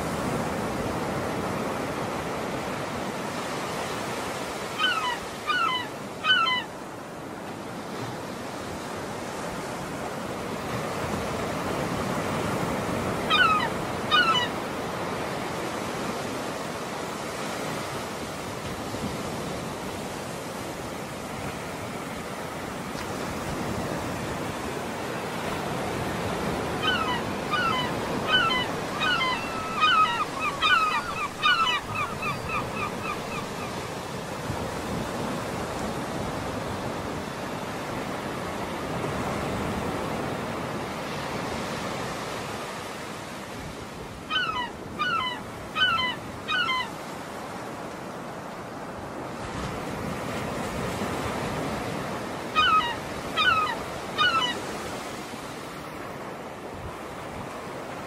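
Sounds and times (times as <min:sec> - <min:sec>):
wind: 0:00.0 - 0:58.0
birds calling: 0:04.7 - 0:06.8, 0:13.3 - 0:14.6, 0:26.6 - 0:34.0, 0:44.3 - 0:47.0, 0:52.6 - 0:54.7.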